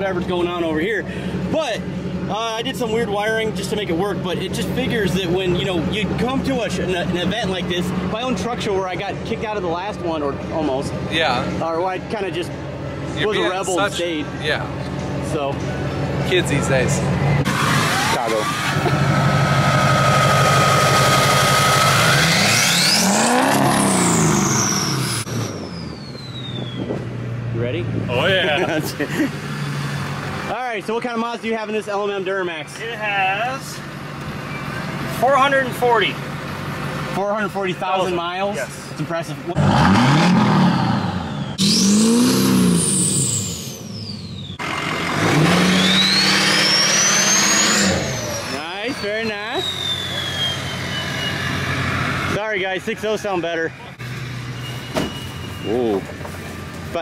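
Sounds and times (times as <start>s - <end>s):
diesel engine revving: 0.0s - 31.0s, 33.6s - 57.0s
turbo whistling: 19.8s - 27.0s, 41.2s - 42.2s, 42.8s - 44.8s, 45.4s - 52.3s, 54.4s - 56.7s.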